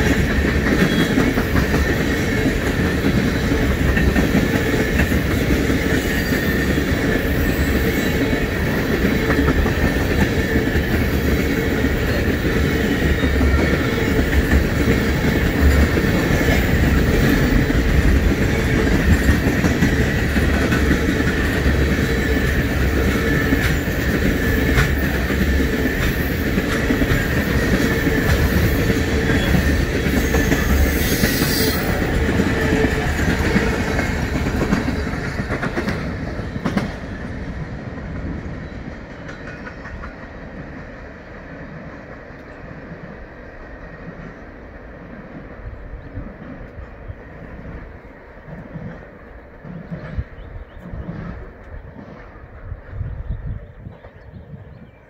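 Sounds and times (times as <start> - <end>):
train wheels clacking over rail joints: 0.0 - 41.0
wheels whining on rail: 0.0 - 55.0.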